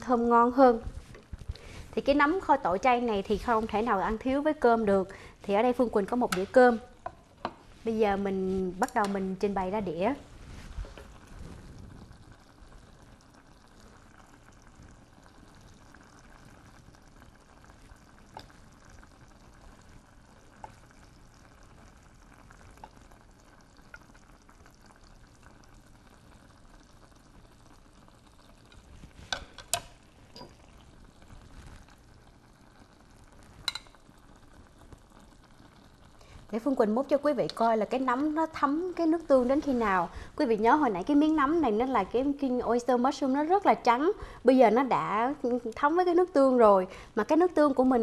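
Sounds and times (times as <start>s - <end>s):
pot simmering softly: 0.0s - 48.0s.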